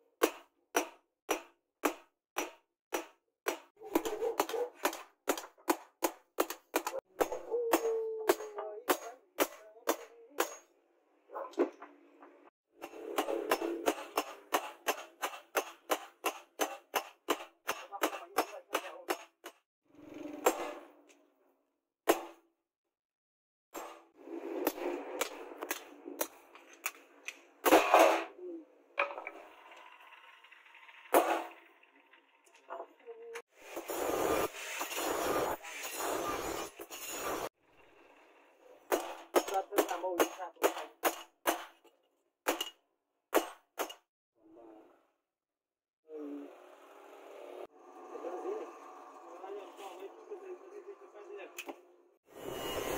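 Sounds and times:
hammer striking chisel: 0:00.2 - 0:10.7, 0:12.8 - 0:19.6, 0:22.1 - 0:22.4, 0:38.9 - 0:41.9, 0:42.5 - 0:44.1.

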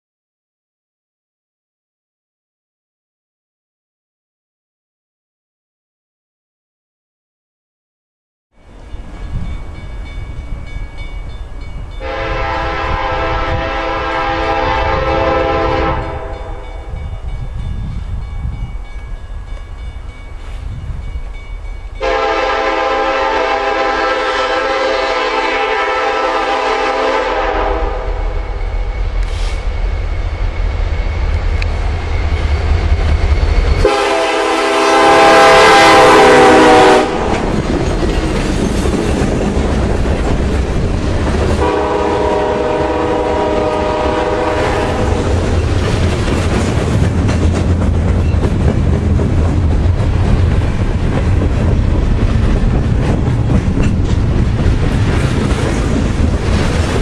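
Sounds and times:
diesel locomotives rumbling: 0:08.6 - 0:57.0
locomotive air horn blasts: 0:12.0 - 0:16.6, 0:22.0 - 0:28.4, 0:33.8 - 0:37.3, 0:41.6 - 0:45.2.

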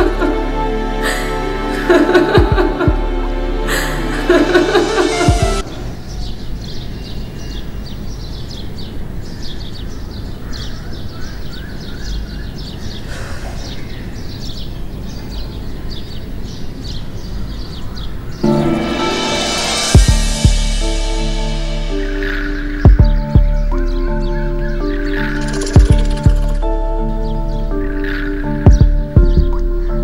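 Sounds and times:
small birds chirping: 0:05.6 - 0:18.5, 0:21.9 - 0:30.0
lower repeated bird notes: 0:10.4 - 0:30.0.

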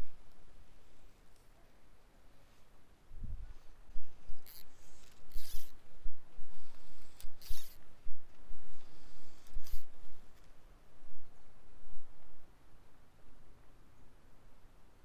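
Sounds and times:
fly line swishing: 0:04.1 - 0:05.8.

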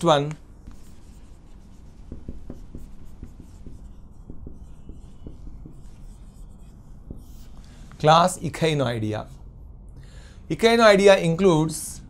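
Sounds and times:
marker writing on whiteboard: 0:00.3 - 0:09.5.

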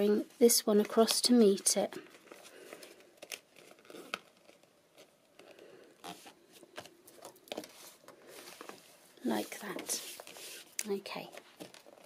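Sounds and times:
paper crackles: 0:02.0 - 0:12.0
paper rustling and crinkling: 0:02.0 - 0:12.0.

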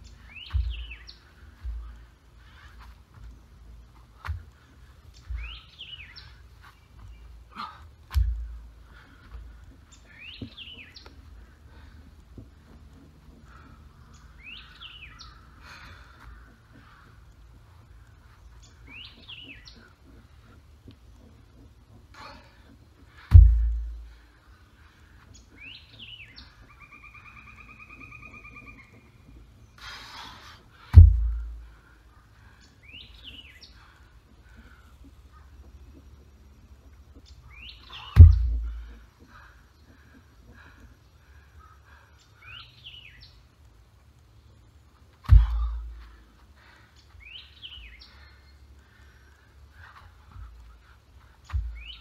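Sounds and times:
birds chirping: 0:00.0 - 0:52.0
rock thudding on ground: 0:23.3 - 0:23.8, 0:30.9 - 0:31.4, 0:38.2 - 0:38.8
songbird trilling: 0:25.3 - 0:29.3.

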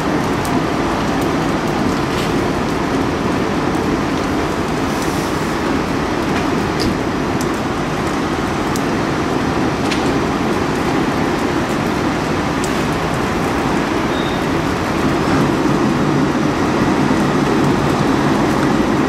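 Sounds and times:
fire crackles and pops: 0:00.0 - 0:19.0
flames rushing: 0:00.0 - 0:19.0.

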